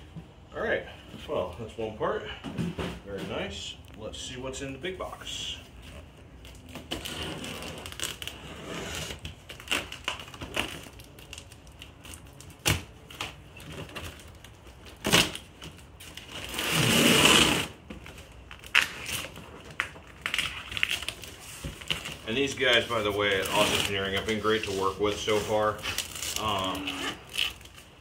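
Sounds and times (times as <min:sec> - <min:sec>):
box cutter slitting tape: 0:06.7 - 0:10.9, 0:15.0 - 0:15.5, 0:16.2 - 0:17.8.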